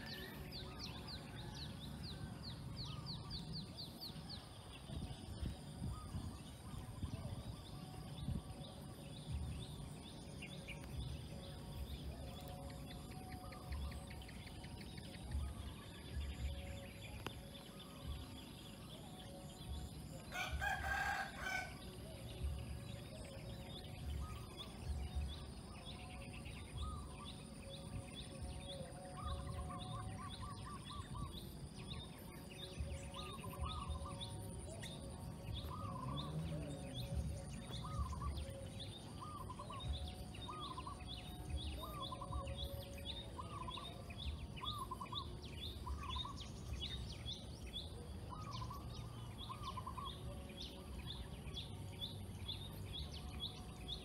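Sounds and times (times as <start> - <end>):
rooster crowing: 20.3 - 21.8.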